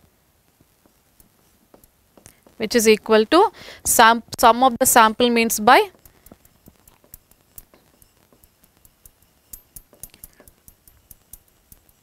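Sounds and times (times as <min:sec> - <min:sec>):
pen tip ticking on glass: 0:05.9 - 0:12.0.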